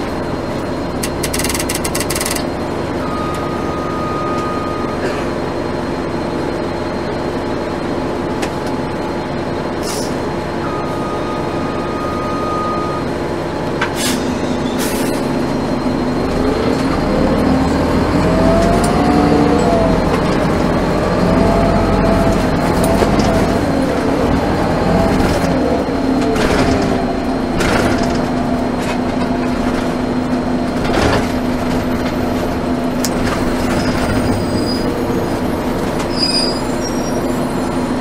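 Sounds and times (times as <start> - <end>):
bus diesel engine: 0.0 - 38.0.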